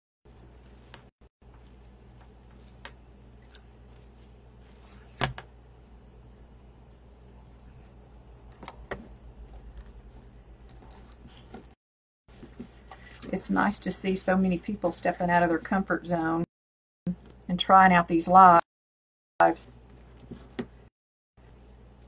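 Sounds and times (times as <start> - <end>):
steady low hum: 0.3 - 16.5.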